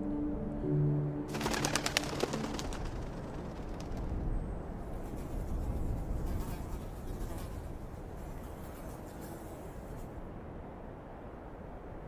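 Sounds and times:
soft ambient music: 0.0 - 5.3.

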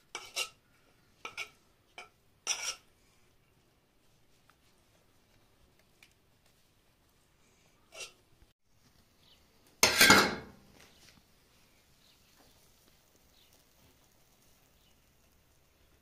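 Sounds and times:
metal dishes clattering: 1.2 - 2.8, 9.8 - 10.6.

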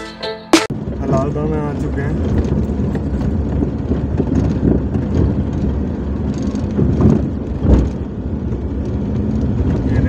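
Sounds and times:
car engine and road rumble: 0.0 - 10.0
car bumps: 2.2 - 8.2.

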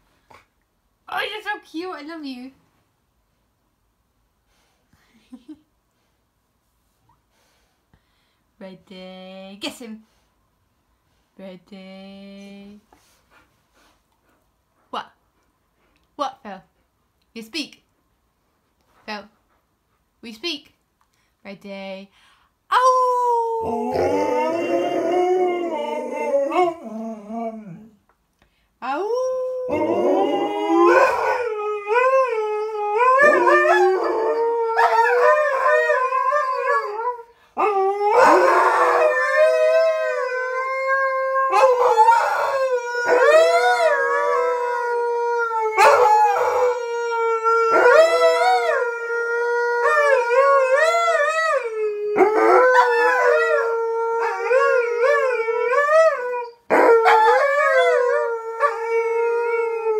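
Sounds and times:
dogs howling: 23.6 - 27.9, 29.6 - 59.9.

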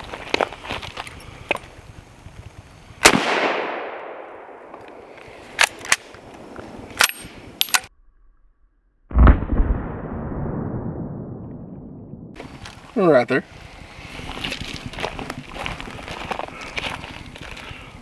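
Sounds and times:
rifle shot with echo: 3.0 - 4.6.

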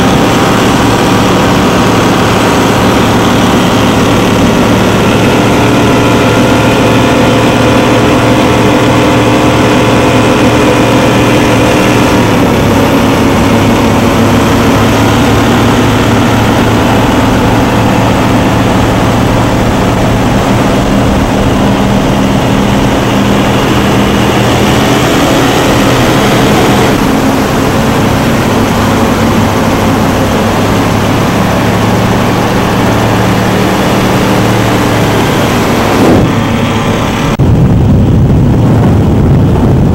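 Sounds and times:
powerboat engines at high speed: 0.0 - 39.9.

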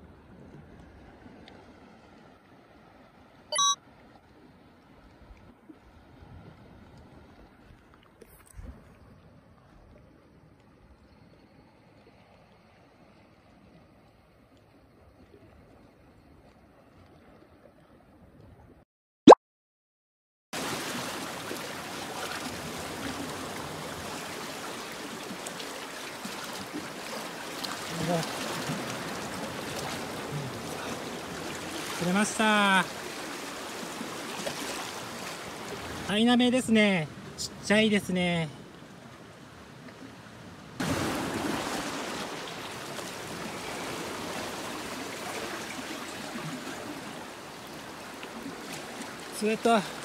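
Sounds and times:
seawater sloshing around blocks: 20.6 - 36.1.

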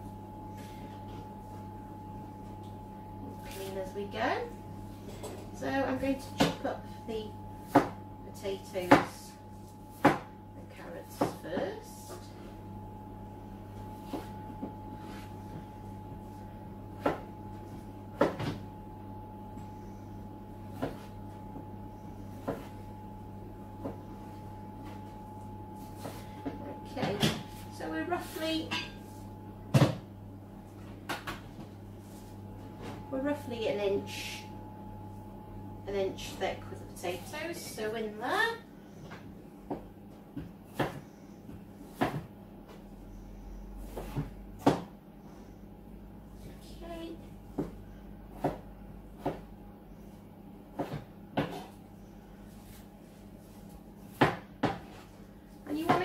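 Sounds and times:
knife chopping on wooden board: 10.0 - 10.3, 54.1 - 55.0.

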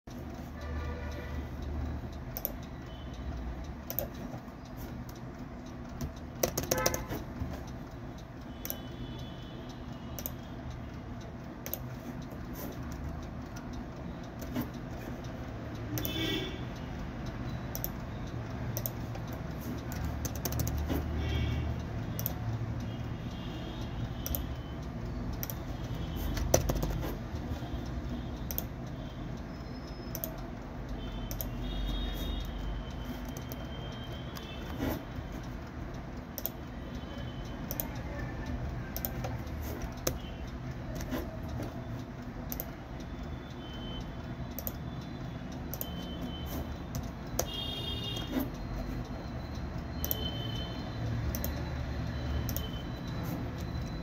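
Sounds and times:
small clicks and taps: 1.6 - 9.3, 10.1 - 16.4, 17.7 - 29.4, 37.6 - 43.1, 44.2 - 49.4.

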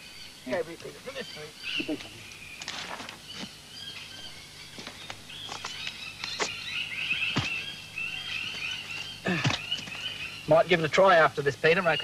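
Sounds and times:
birds chirping: 0.0 - 12.0
knocks and rustles of rope and branches: 2.6 - 3.5, 8.5 - 10.1.

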